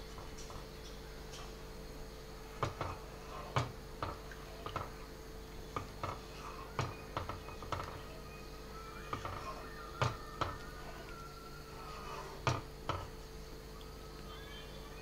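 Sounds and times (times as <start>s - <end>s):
faint steady hum: 0.0s - 15.0s
spatula scraping a pan: 5.8s - 8.2s, 9.0s - 13.2s.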